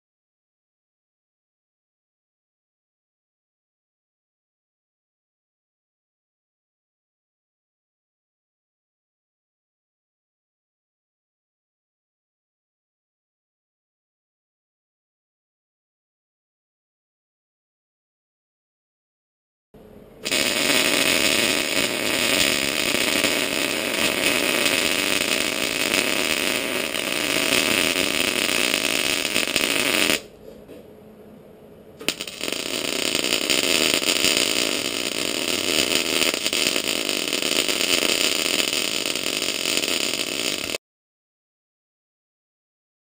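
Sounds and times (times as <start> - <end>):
welding arc crackling: 20.2 - 30.3, 32.0 - 40.8.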